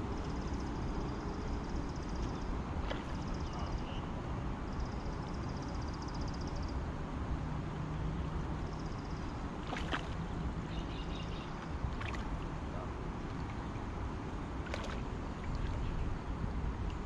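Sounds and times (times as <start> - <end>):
stream rushing: 11.8 - 16.5.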